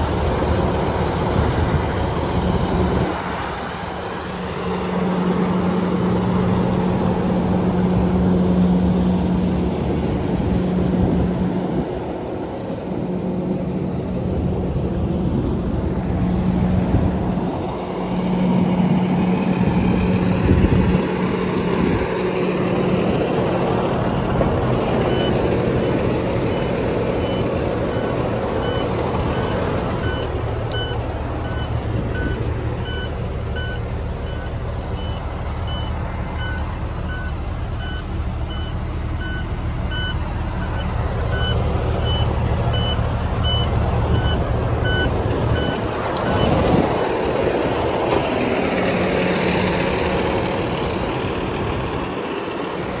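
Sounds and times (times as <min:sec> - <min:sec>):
diesel engine idling: 0:00.0 - 0:53.0
electronic warning beeper: 0:25.0 - 0:47.9.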